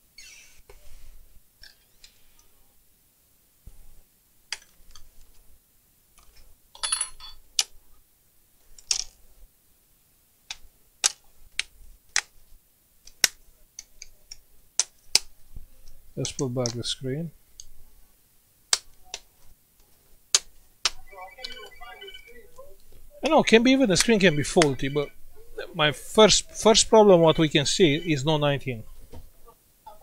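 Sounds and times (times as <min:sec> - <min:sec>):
plastic clicks and snaps: 0:10.5 - 0:12.3, 0:13.0 - 0:16.8.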